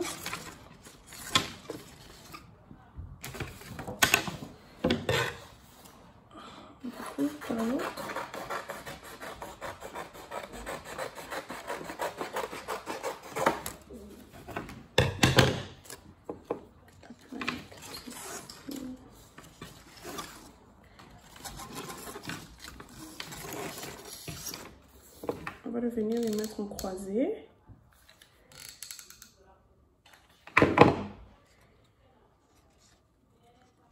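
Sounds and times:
scissors cutting stiff paper: 0:06.9 - 0:13.8.

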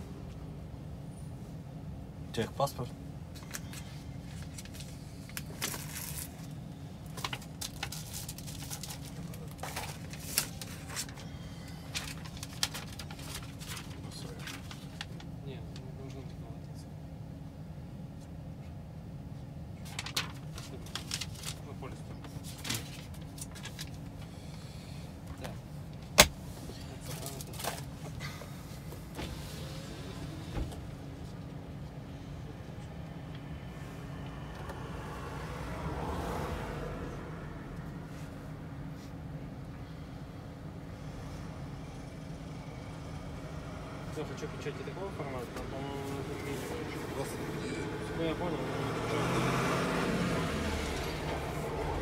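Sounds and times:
steady low hum: 0:00.0 - 0:48.7
papers rustling: 0:03.4 - 0:15.3, 0:19.8 - 0:21.6, 0:22.2 - 0:24.2.

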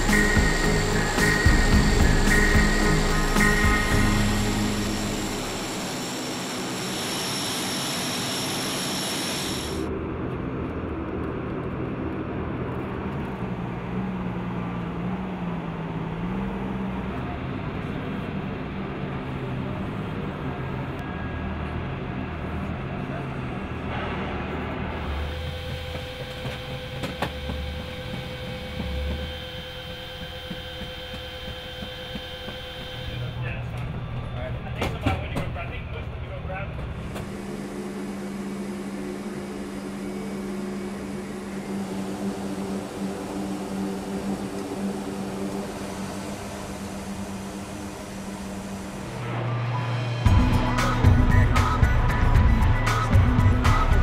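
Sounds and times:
turboprop engines with whine: 0:00.0 - 0:54.0
low engine rumble: 0:09.6 - 0:54.0
low steady hum: 0:24.6 - 0:50.4.

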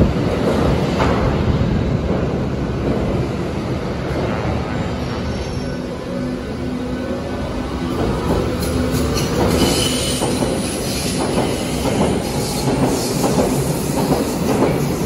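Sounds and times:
underground train rumbling: 0:00.0 - 0:15.0
high wheel squeal: 0:08.6 - 0:13.1.

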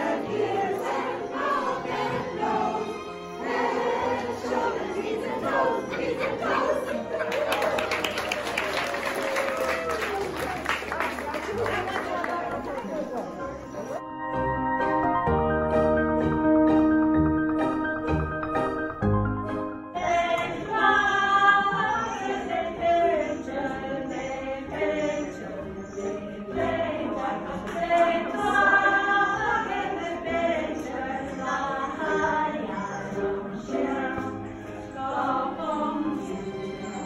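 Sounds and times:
women singing together: 0:00.0 - 0:08.1, 0:20.0 - 0:37.0.

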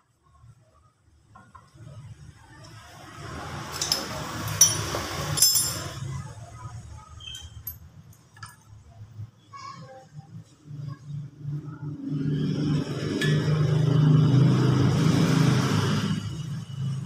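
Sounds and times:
sharp metallic clinks: 0:03.8 - 0:06.1.

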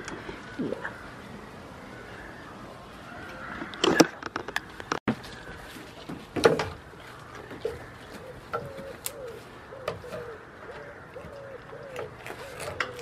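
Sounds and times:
bird cooing: 0:07.5 - 0:13.0.

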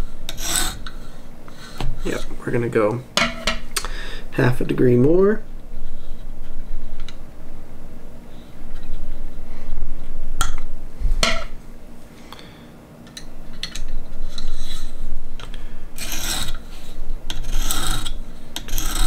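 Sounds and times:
sharpening stone rasping on knife: 0:00.3 - 0:01.0, 0:16.0 - 0:16.6, 0:17.3 - 0:19.0.

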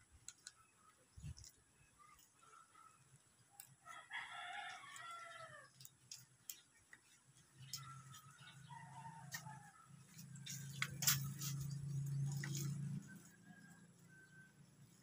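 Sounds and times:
rooster crowing: 0:03.8 - 0:05.7, 0:08.5 - 0:10.5.

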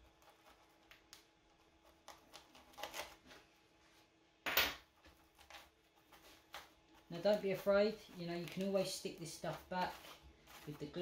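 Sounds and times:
foam rustling and scraping: 0:05.4 - 0:11.0.

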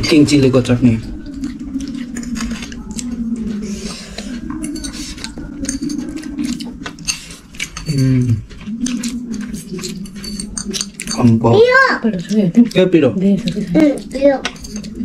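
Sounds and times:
cutlery and plates clinking: 0:04.2 - 0:15.0.

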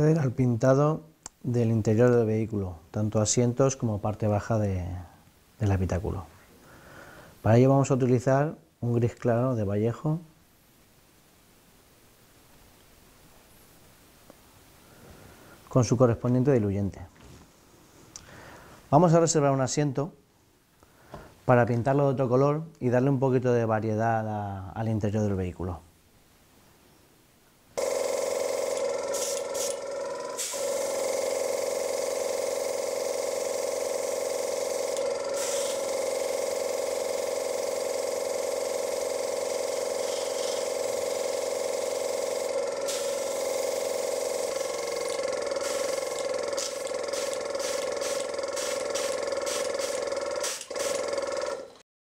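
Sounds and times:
compressor motor hum: 0:27.8 - 0:51.8
airbrush hiss: 0:28.7 - 0:31.1, 0:33.1 - 0:36.6, 0:39.6 - 0:51.1.

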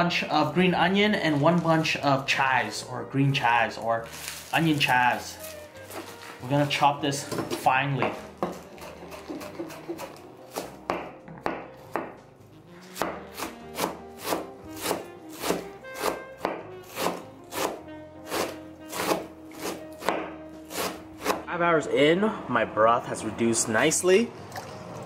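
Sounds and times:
knife chopping herbs on board: 0:07.3 - 0:12.2, 0:12.9 - 0:21.4.

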